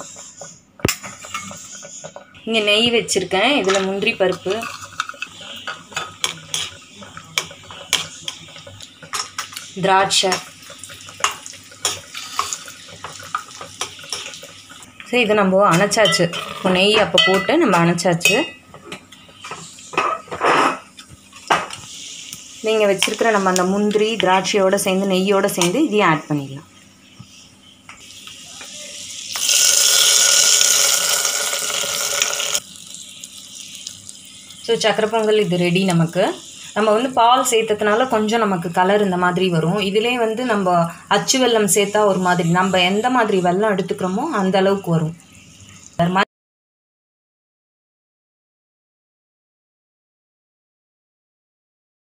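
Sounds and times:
metal ladle scraping a pan: 0.0s - 2.3s, 3.7s - 14.8s, 19.9s - 20.9s
food sizzling in ghee: 0.0s - 46.3s.

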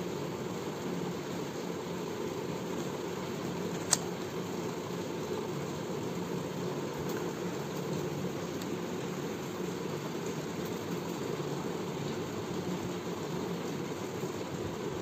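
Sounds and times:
room hum and hiss: 0.0s - 15.0s
sharp click: 3.7s - 4.1s.

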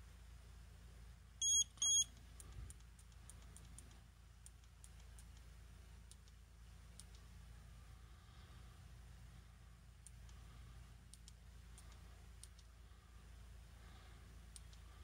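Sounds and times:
short high beeps: 1.4s - 2.1s.

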